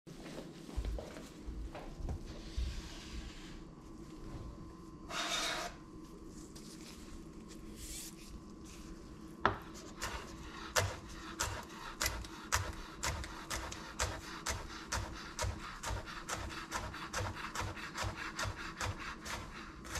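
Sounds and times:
brief scrape: 5.1s - 5.8s
knife chopping on wooden board: 9.5s - 19.9s.

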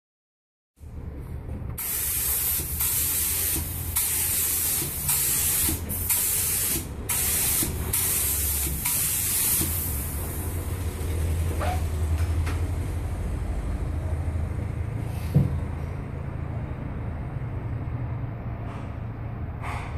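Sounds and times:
spray hissing in short bursts: 1.8s - 10.2s.

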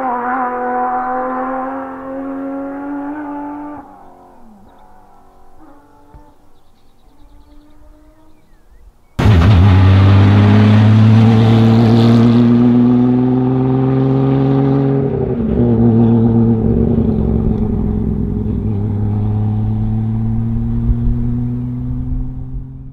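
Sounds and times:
car engine accelerating: 0.0s - 5.3s, 9.2s - 22.9s
gear change: 15.1s - 22.4s.

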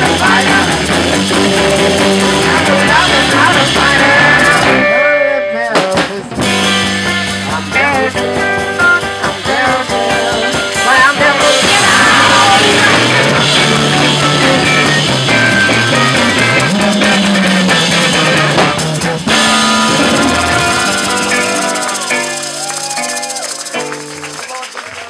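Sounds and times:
bass guitar: 0.0s - 25.0s
drum kit: 0.0s - 25.0s
electric guitar: 0.0s - 25.0s
maracas shaking: 16.2s - 25.0s.

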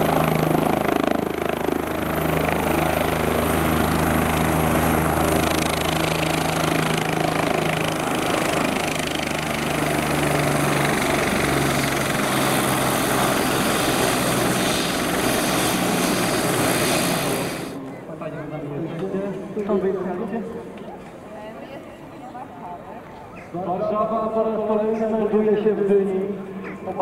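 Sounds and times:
helicopter turbine and rotor: 0.0s - 18.6s.

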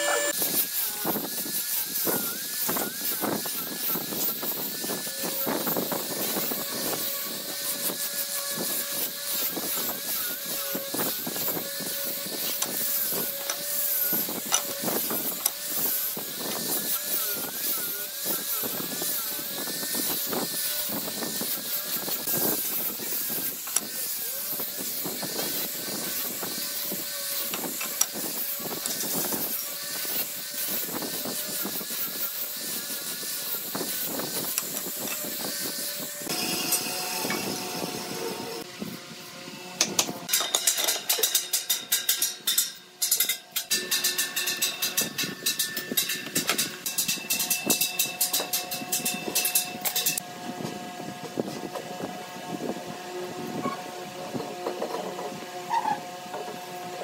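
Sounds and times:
sanding disc hissing on wood: 0.0s - 40.2s
angle grinder motor whine: 0.0s - 40.3s.

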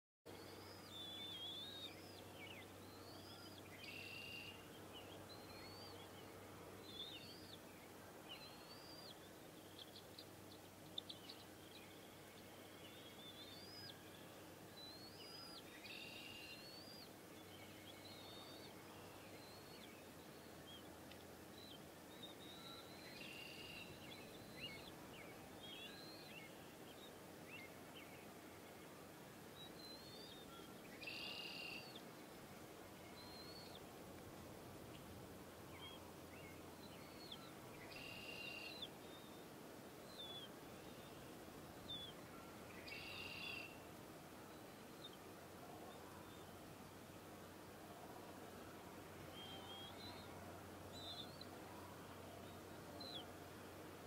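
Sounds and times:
faint bird calls: 29.6s - 32.2s, 35.7s - 47.1s, 48.1s - 53.4s.

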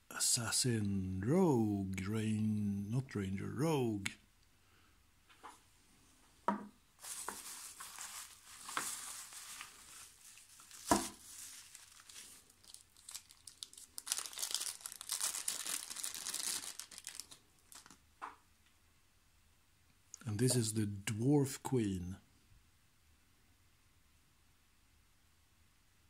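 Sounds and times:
plastic packing crinkling: 7.0s - 18.0s.

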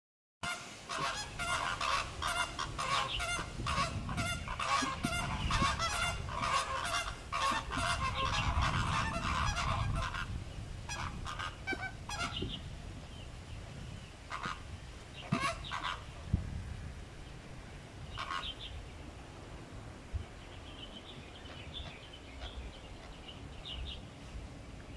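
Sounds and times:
flamingos honking: 0.4s - 12.6s, 14.3s - 16.3s, 18.0s - 18.8s, 21.4s - 24.0s.

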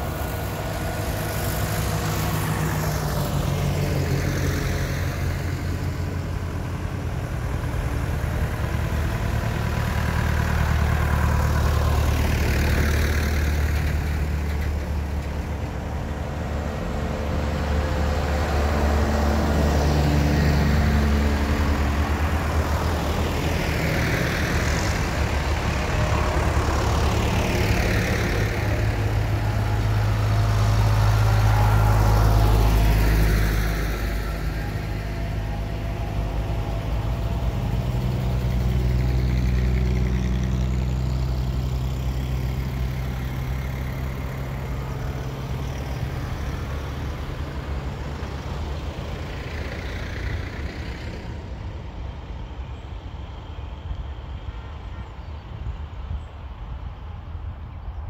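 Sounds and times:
tractors driving past: 0.0s - 58.0s.

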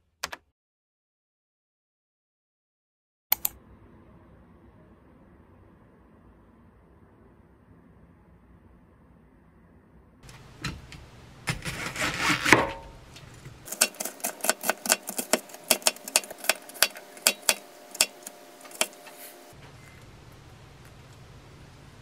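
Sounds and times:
knife mincing on plastic cutting board: 10.4s - 19.5s.

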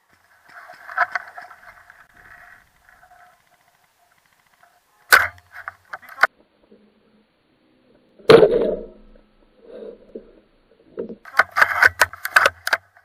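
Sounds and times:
faint scratchy noise: 0.0s - 13.0s
airsoft rifle shot crack: 5.1s - 5.4s.

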